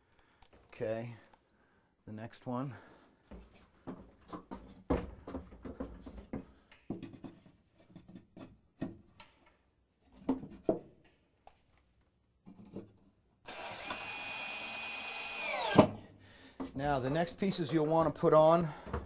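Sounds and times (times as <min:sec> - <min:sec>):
cordless drill whining: 0:13.5 - 0:15.9.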